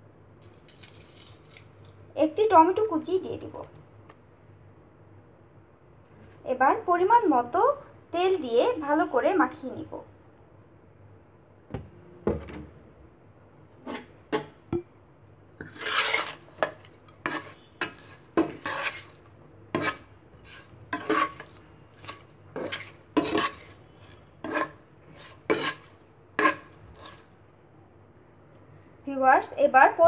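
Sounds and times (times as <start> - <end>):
tongs scraping a pan: 13.8 - 14.5, 15.6 - 27.3.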